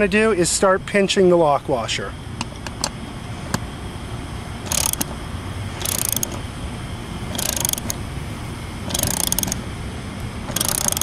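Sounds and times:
ratchet wrench clicking: 0:04.6 - 0:05.1, 0:05.8 - 0:06.4, 0:07.3 - 0:08.0, 0:08.9 - 0:09.6, 0:10.5 - 0:11.0.

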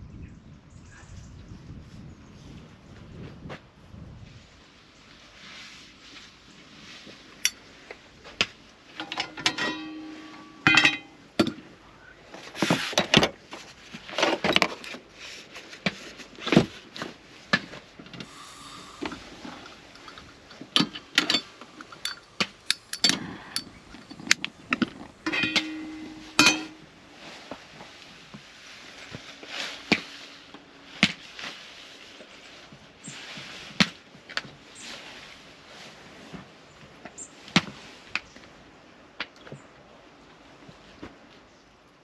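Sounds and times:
short ringing tone: 0:25.4 - 0:26.8.

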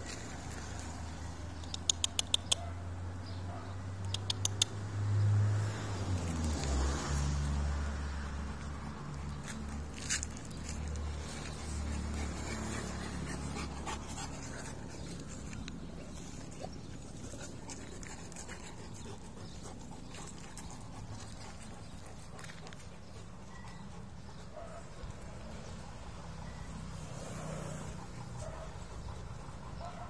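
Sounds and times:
sharp ticks: 0:01.6 - 0:02.7, 0:04.0 - 0:04.8
dog breathing and whimpering: 0:11.1 - 0:30.0.

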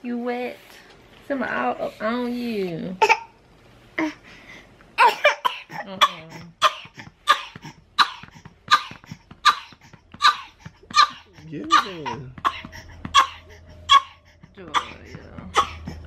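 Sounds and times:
baby coughing: 0:03.0 - 0:03.4, 0:05.0 - 0:16.0.

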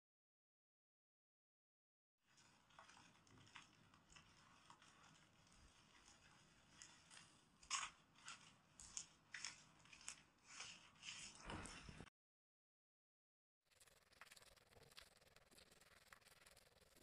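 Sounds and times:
dental instrument scraping and clicking: 0:02.6 - 0:11.4, 0:13.8 - 0:17.0.

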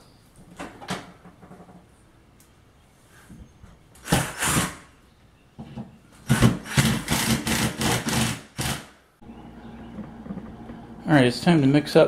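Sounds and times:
impact driver driving screws: 0:04.0 - 0:04.8, 0:06.2 - 0:08.9.

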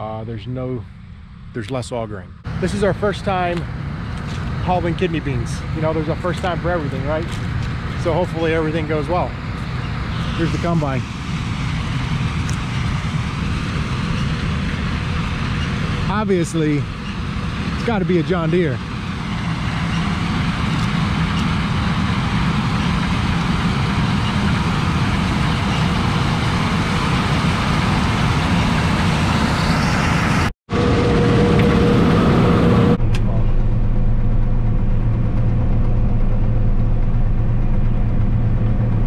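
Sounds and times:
combine harvester running: 0:00.0 - 0:39.0
dull hum inside cab: 0:30.8 - 0:39.0.

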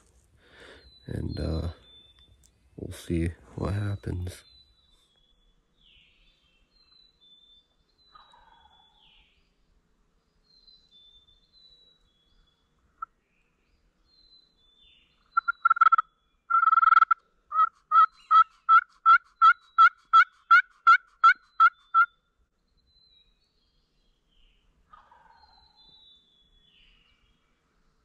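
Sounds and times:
turkey call yelps: 0:15.4 - 0:22.1.

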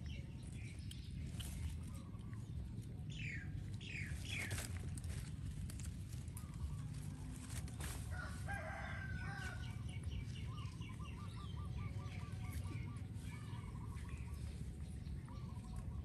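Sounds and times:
low background rumble: 0:00.0 - 0:16.0
rooster crowing: 0:08.1 - 0:09.6.

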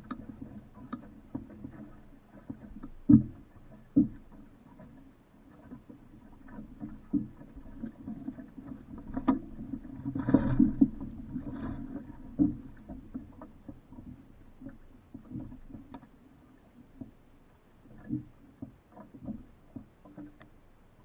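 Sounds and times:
water sloshing against boat hull: 0:00.0 - 0:21.0
knocks on boat: 0:02.8 - 0:04.2.

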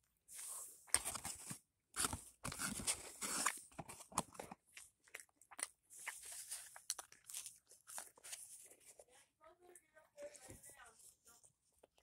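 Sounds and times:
chewing food crunches: 0:04.2 - 0:08.3.

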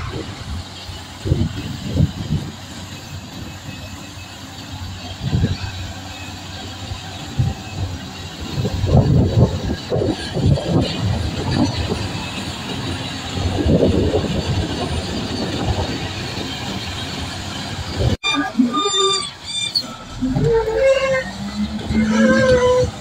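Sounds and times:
wheel loader diesel engine: 0:00.0 - 0:23.0.

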